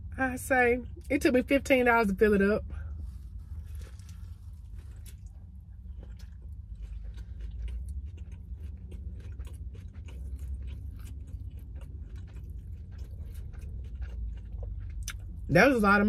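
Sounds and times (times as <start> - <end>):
steady low hum: 0.0 - 16.0
close-up chewing: 2.8 - 15.6.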